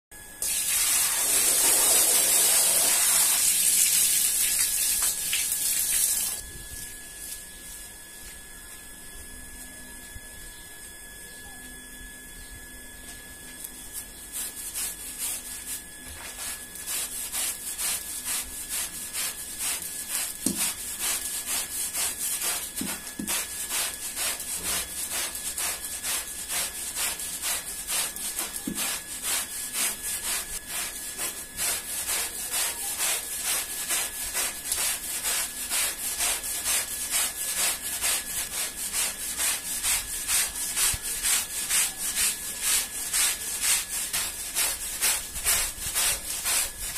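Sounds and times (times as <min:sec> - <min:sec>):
water pouring and splashing: 0:00.4 - 0:06.5
scrubber rubbing wet rug: 0:00.4 - 0:07.4, 0:14.0 - 0:46.9.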